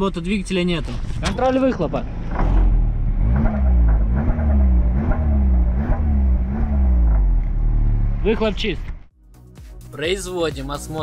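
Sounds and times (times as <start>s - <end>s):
car exhaust revving: 2.0s - 9.0s.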